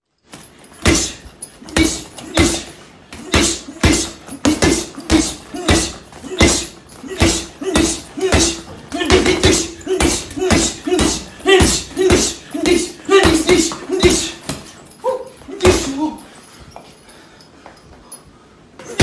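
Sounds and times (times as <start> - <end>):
punches thudding on heavy bag: 0.8 - 14.7, 15.6 - 16.0.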